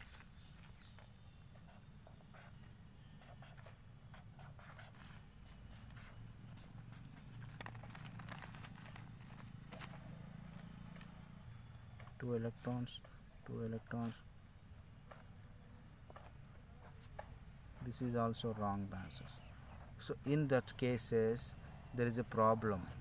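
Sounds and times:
pen scratching on paper: 1.5s - 7.4s.

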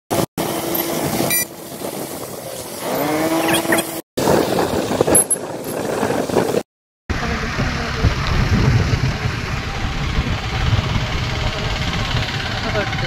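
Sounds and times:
motorcycle engine and road noise: 0.1s - 13.0s
street traffic: 0.1s - 13.0s
vehicle engine pitch rising: 7.1s - 13.0s.

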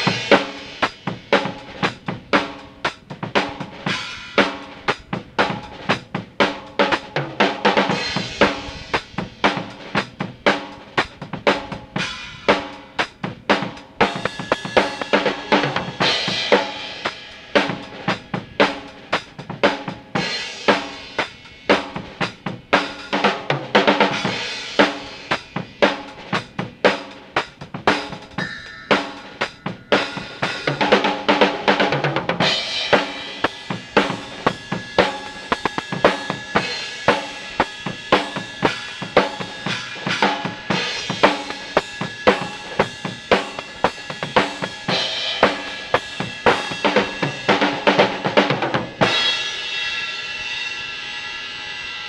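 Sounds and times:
drum kit playing a steady beat: 0.0s - 52.0s
crash cymbal: 14.1s - 23.2s, 24.1s - 31.7s, 32.4s - 47.5s, 48.9s - 52.0s.

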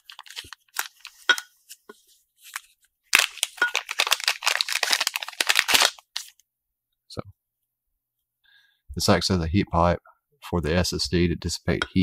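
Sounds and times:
plastic zip bag crinkling: 0.0s - 1.2s, 2.5s - 6.4s.

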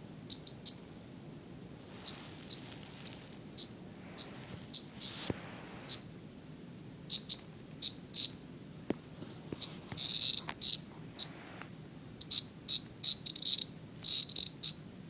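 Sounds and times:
cicada buzzy squawks: 0.3s - 0.8s, 2.0s - 6.1s, 7.1s - 8.4s, 9.6s - 11.4s, 12.2s - 14.9s.

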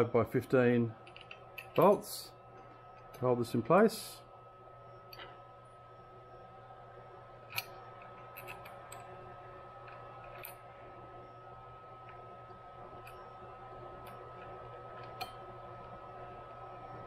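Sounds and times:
steady hum: 0.0s - 17.0s
hex key clicking and scraping: 1.0s - 2.0s, 7.5s - 9.2s, 9.8s - 10.8s, 12.9s - 15.4s.

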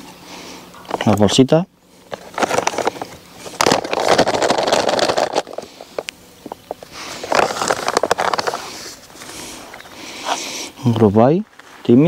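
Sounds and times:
plastic bag crinkling: 2.0s - 9.4s.

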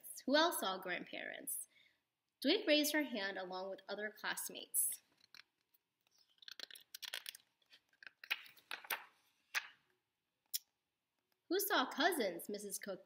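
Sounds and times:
paper pages rustling: 5.1s - 9.8s.

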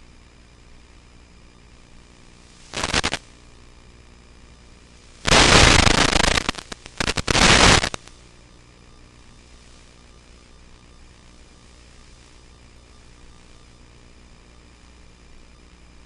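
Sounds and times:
faint steady hiss: 2.1s - 3.5s, 4.4s - 14.6s
radio static bursts: 2.5s - 3.3s, 5.2s - 8.1s.

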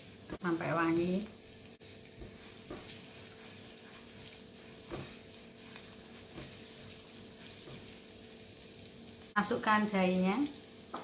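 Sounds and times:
garlic sizzling in oil: 0.0s - 11.0s
spatula knocking on pan: 2.1s - 3.1s, 4.8s - 8.0s.

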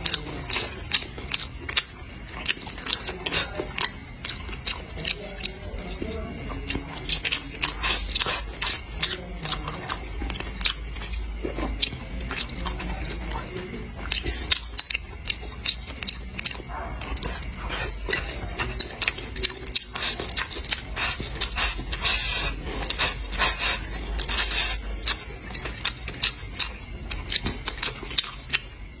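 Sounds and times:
chewing with wet mouth clicks: 0.0s - 29.0s.

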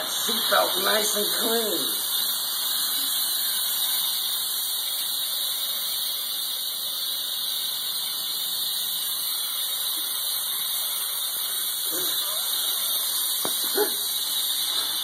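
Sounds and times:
pressure washer spraying water: 0.0s - 15.0s.

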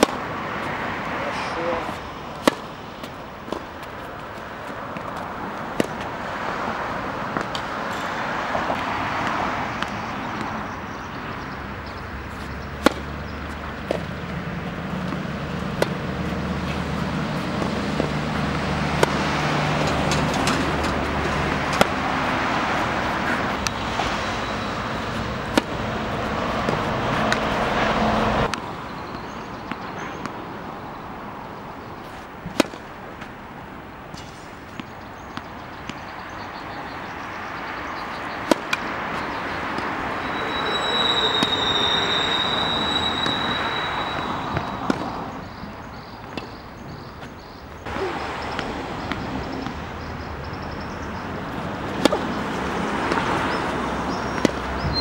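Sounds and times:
tennis ball struck with racket: 0.0s - 0.4s, 1.5s - 6.3s, 7.3s - 30.4s, 31.9s - 33.4s, 38.0s - 39.9s, 44.1s - 49.8s, 50.8s - 55.0s
road traffic noise: 0.0s - 55.0s
vehicle engine hum: 0.0s - 55.0s.

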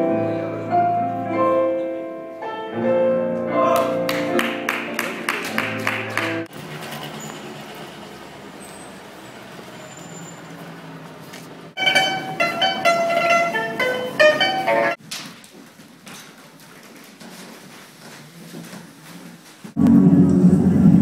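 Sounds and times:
background noise: 0.0s - 21.0s
plucked lute notes: 11.8s - 15.0s.

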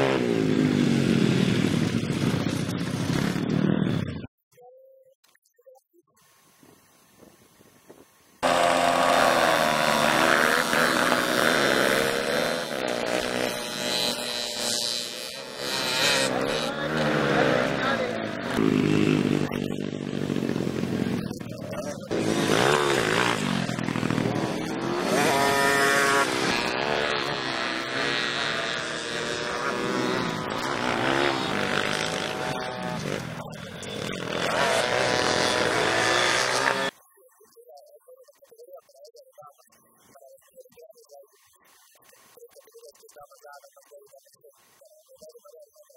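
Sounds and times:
motorbike engines revving: 0.0s - 4.3s, 8.4s - 37.0s.

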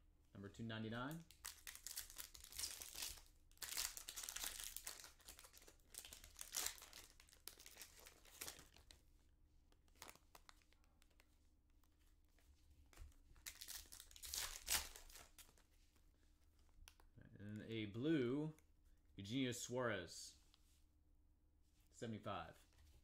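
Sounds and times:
foil wrapper crinkling and tearing: 1.3s - 8.9s, 13.4s - 15.6s.

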